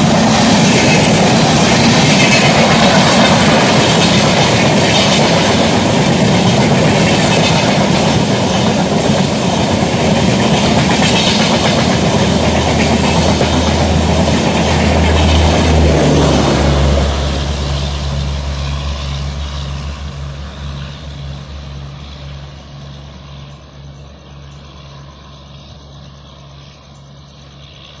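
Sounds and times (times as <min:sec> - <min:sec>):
passenger train rumbling past: 0:00.0 - 0:28.0.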